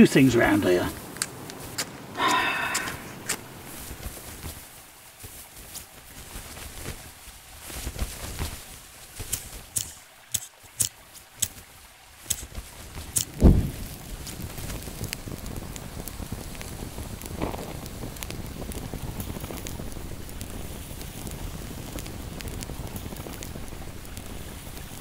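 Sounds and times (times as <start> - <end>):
fire crackling: 0.0 - 25.0
sharp match strikes: 8.0 - 25.0
loud low thump: 13.4 - 13.8.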